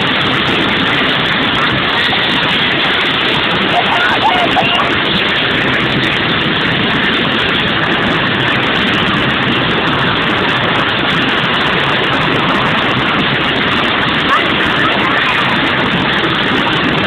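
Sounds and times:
loud engine noise: 0.0 - 17.0.

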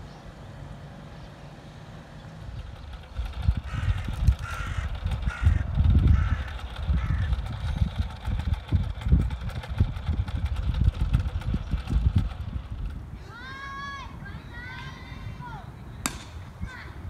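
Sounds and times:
bird calling: 0.0 - 8.4
wind buffeting microphone: 2.2 - 17.0.

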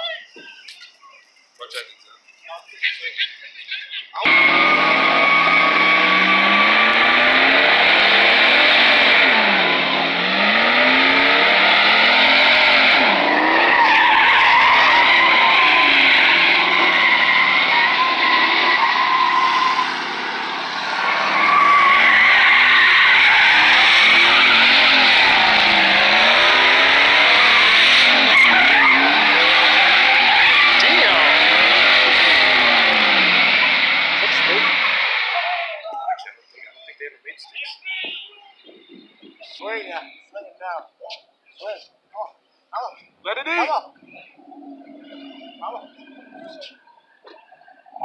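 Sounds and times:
truck engine revving: 4.2 - 35.7
tires squealing on asphalt: 4.2 - 35.9, 43.4 - 48.0.

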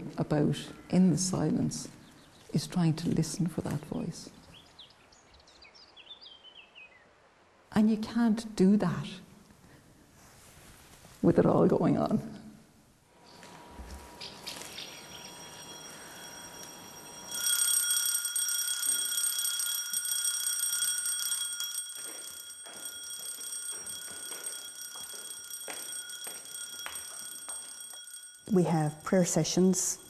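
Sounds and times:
electric bell ringing: 13.7 - 30.0.

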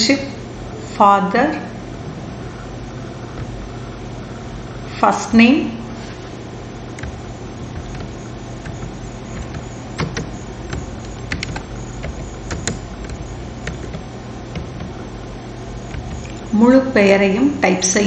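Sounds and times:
steady low hum: 0.0 - 18.0
keyboard key clicks: 7.0 - 7.2, 7.8 - 15.0, 15.8 - 16.5.

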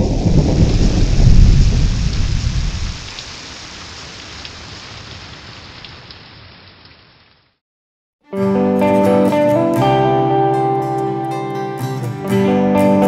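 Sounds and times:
low thunder rumble: 0.0 - 3.1
steady rain: 0.0 - 7.6.

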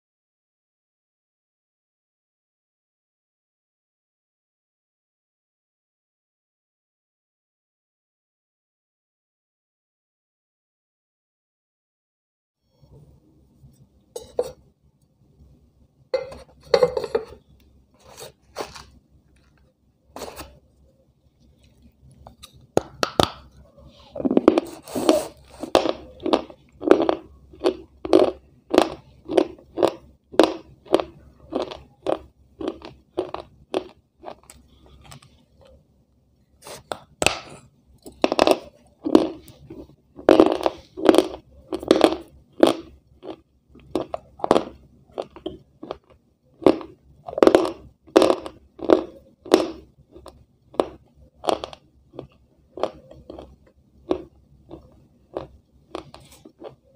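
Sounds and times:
crisp crunching chews: 24.4 - 35.8, 36.6 - 56.9.

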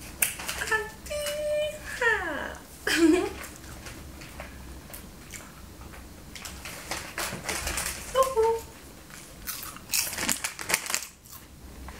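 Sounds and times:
rustling and shuffling: 5.8 - 9.3.

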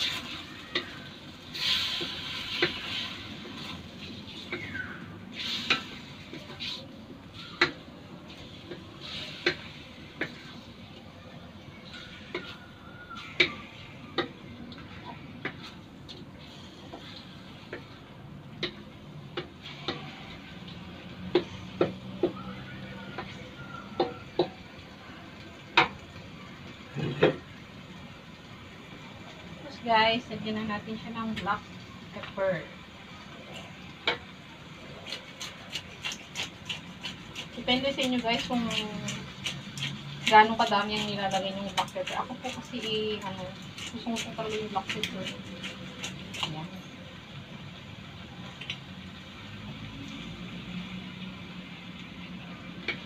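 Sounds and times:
spatula knocking and scraping wok: 0.0 - 3.8, 21.2 - 22.4, 23.1 - 24.6, 35.0 - 46.7
meat sizzling: 0.0 - 10.9, 23.9 - 53.0.

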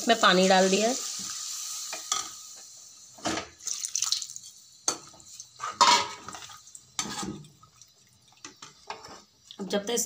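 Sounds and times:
water splashing into pan: 3.2 - 9.0
metal spoon scraping pan: 5.6 - 7.4.

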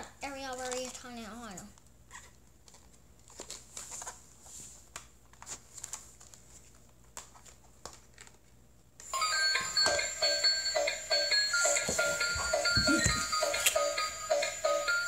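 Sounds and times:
electronic beeping melody: 9.2 - 15.0.

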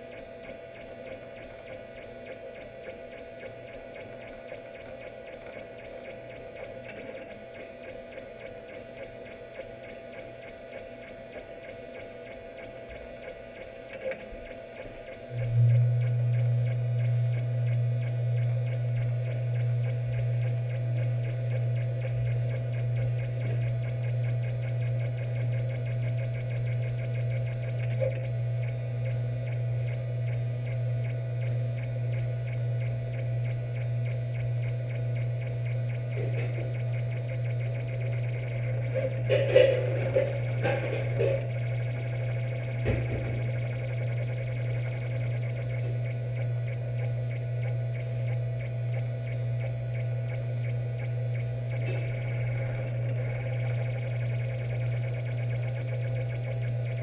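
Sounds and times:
loud low pulsing hum: 15.3 - 57.0.

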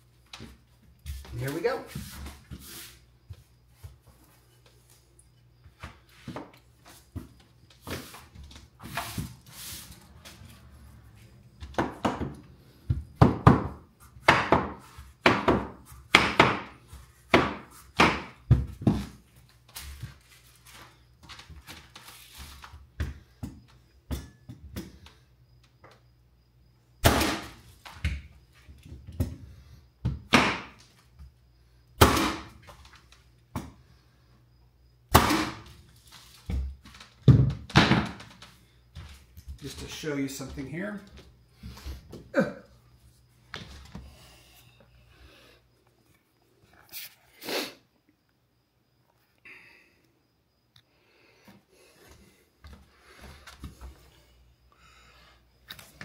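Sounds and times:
mallet striking flooring stapler: 27.0 - 27.5, 32.0 - 32.6, 35.1 - 35.7.

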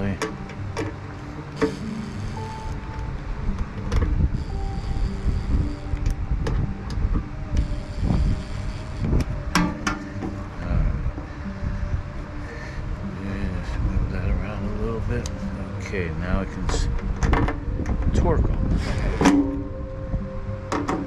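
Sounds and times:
low rumble: 0.0 - 21.0
cordless drill motor whining: 0.5 - 10.6.

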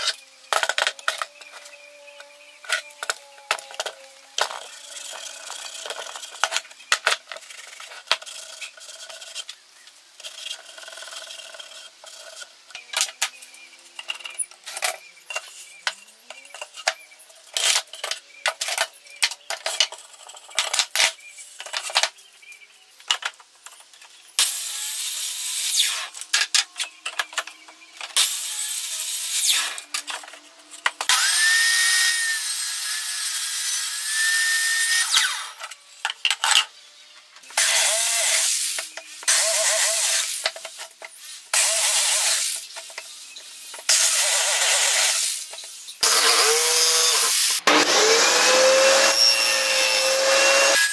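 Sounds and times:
table saw running: 31.1 - 35.7, 46.0 - 50.9.

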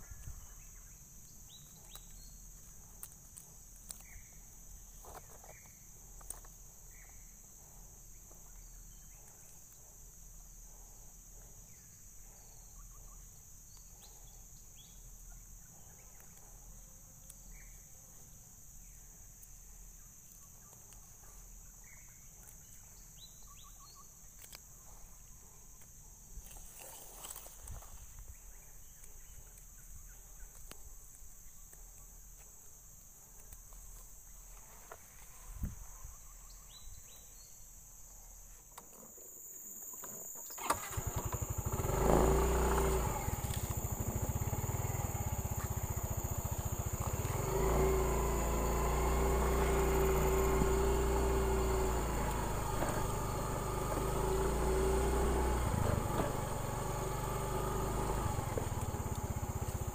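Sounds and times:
rustles and clicks in grass: 0.0 - 9.9, 25.6 - 37.4
high-pitched insect drone: 39.6 - 59.9.

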